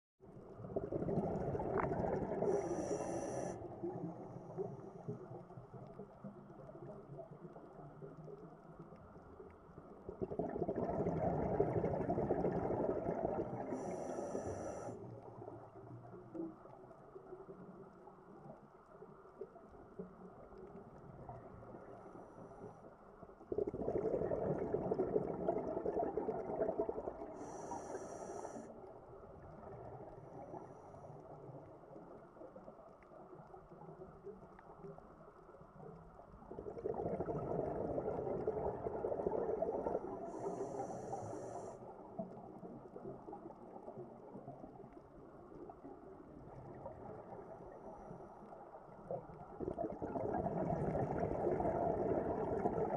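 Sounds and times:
diver exhaling bubbles: 0.6s - 3.1s, 10.1s - 14.4s, 23.5s - 27.8s, 36.5s - 41.1s, 49.6s - 52.9s.

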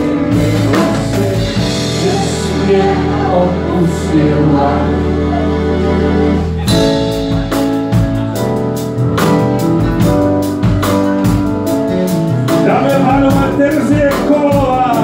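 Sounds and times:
drum kit with cymbal strokes: 0.0s - 3.0s, 6.7s - 15.0s
keyboard and guitar chords: 0.0s - 15.0s.

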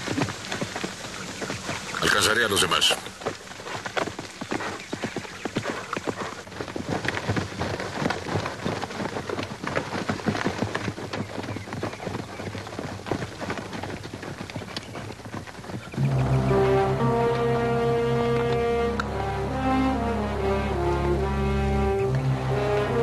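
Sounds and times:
horse hoofbeats on dirt: 0.0s - 19.2s
music: 16.0s - 23.0s.

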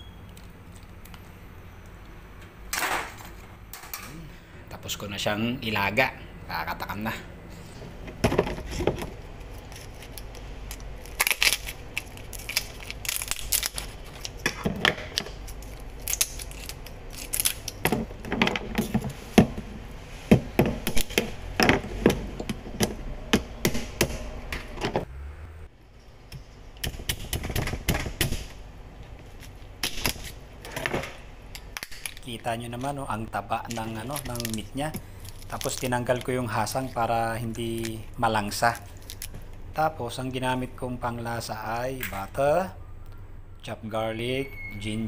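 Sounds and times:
cutting crab shells: 9.4s - 18.1s.

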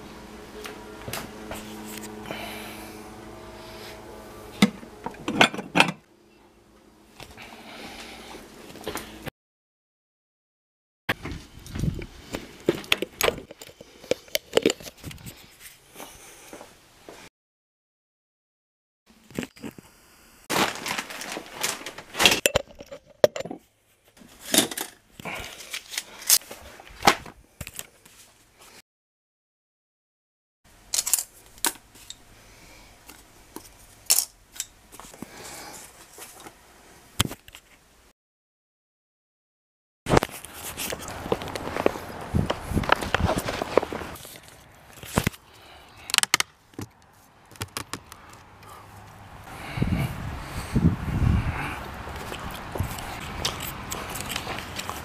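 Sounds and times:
glass jars clinking: 22.3s - 23.6s.

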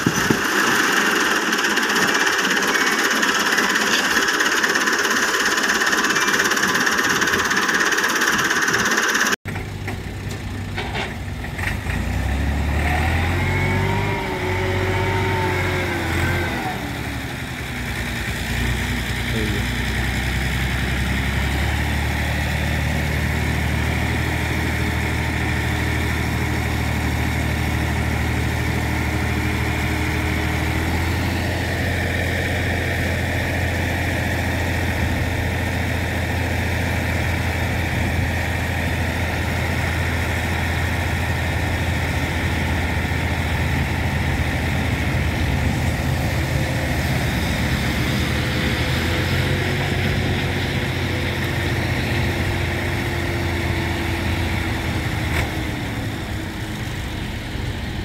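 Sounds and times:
hydraulics tipping trolley: 0.0s - 9.7s
tractor diesel engine running: 0.0s - 58.0s.

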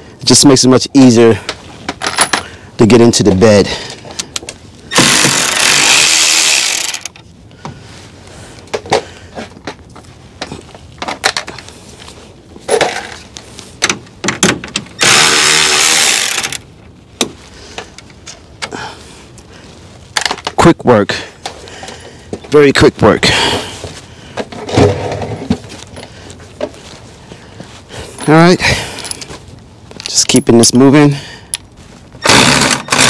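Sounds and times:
tool handling clicks and knocks: 1.4s - 2.6s, 8.6s - 11.8s, 12.6s - 16.6s, 20.1s - 20.7s, 23.8s - 26.8s
cordless ratchet running: 4.9s - 7.1s, 15.0s - 16.6s, 32.2s - 33.0s.

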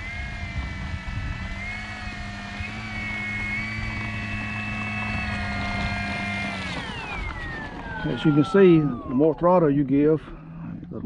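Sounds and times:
model plane electric motor whine: 0.0s - 10.9s.

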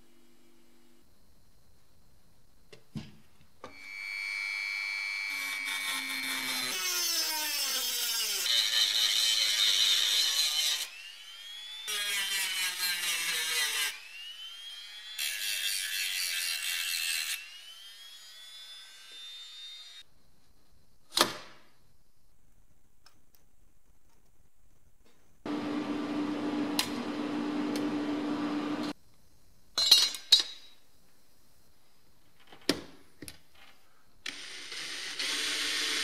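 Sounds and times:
rotary tool grinding metal: 3.7s - 20.0s.

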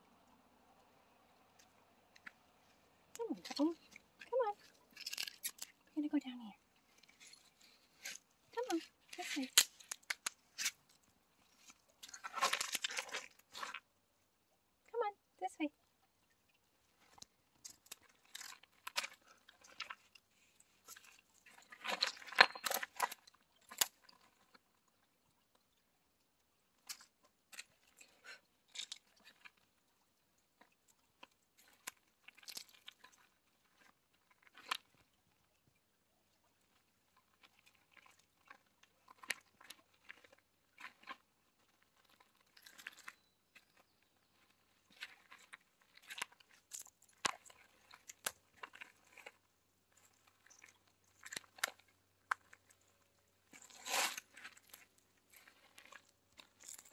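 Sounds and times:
footsteps on rocks and gravel: 11.7s - 13.8s.

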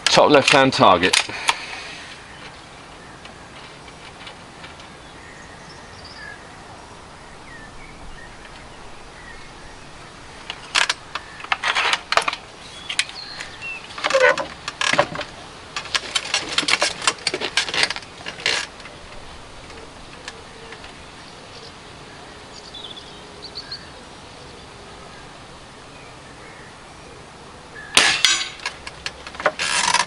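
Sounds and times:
air rifle clicks and rattles: 0.0s - 1.7s, 10.4s - 21.0s, 28.0s - 30.0s
faint bird chirps: 19.0s - 28.0s.

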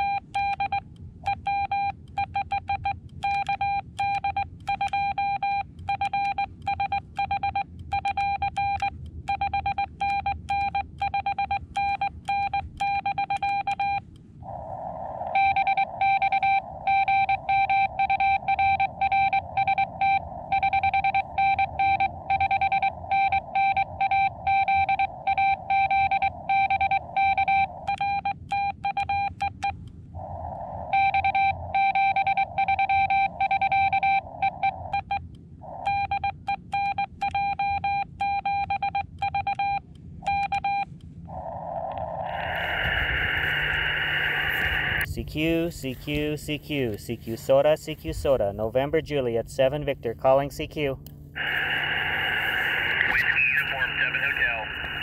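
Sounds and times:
morse code tone: 0.0s - 14.0s, 15.3s - 29.7s, 30.9s - 48.5s, 51.4s - 55.0s
radio hiss: 14.4s - 27.8s, 41.3s - 55.0s.

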